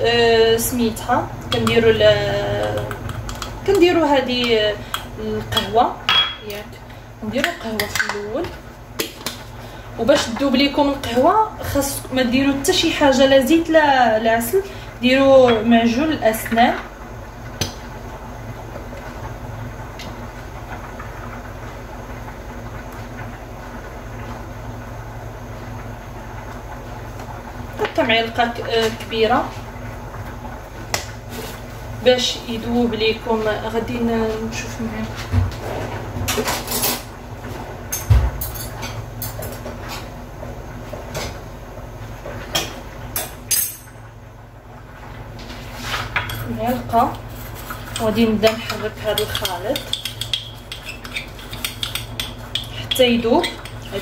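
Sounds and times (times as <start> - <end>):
low mechanical hum: 0.0 - 54.0
spoon and containers clicking on table: 49.2 - 53.8.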